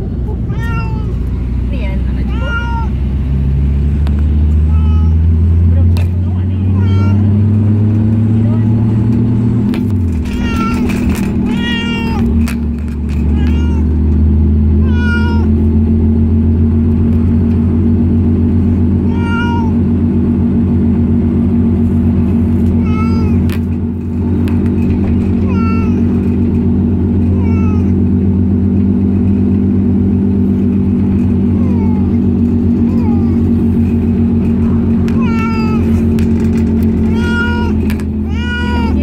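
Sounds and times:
loud low drone: 0.0s - 39.0s
cat meowing: 0.4s - 1.3s, 2.3s - 3.0s, 4.6s - 5.4s, 6.6s - 7.4s, 10.2s - 12.6s, 13.2s - 14.1s, 14.8s - 15.6s, 18.8s - 20.0s, 22.6s - 23.5s, 25.3s - 26.3s, 27.3s - 28.2s, 31.4s - 33.9s, 35.0s - 36.4s, 37.0s - 39.0s.

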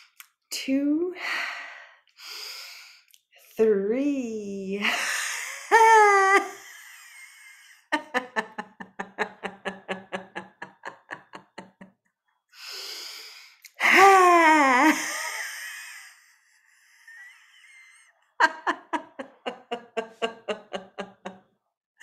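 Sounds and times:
person laughing loudly: 5.4s - 11.9s, 14.0s - 16.1s, 17.1s - 21.4s
breathy intake: 12.6s - 13.9s.

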